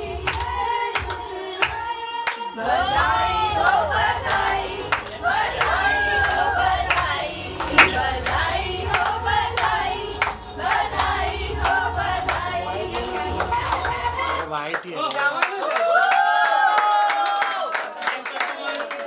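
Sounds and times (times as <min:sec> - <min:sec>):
voices singing together: 0:00.0 - 0:14.3
hands clapping along: 0:00.3 - 0:02.5, 0:04.3 - 0:19.0.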